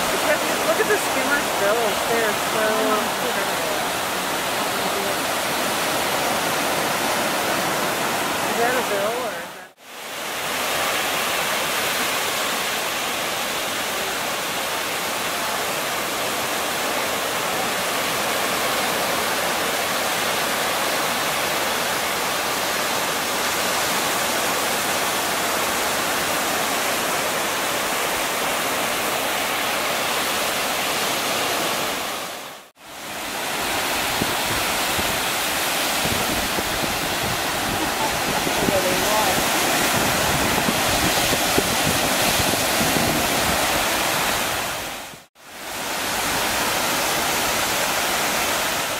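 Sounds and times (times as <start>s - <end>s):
ocean surf: 0.0s - 48.9s
wind: 0.0s - 48.9s
low wind rumble on microphone: 35.9s - 45.0s.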